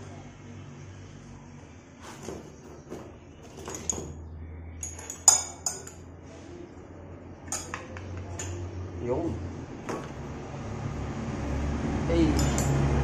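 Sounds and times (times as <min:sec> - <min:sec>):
metal brake parts clinking: 0:04.8 - 0:06.0, 0:12.4 - 0:12.8.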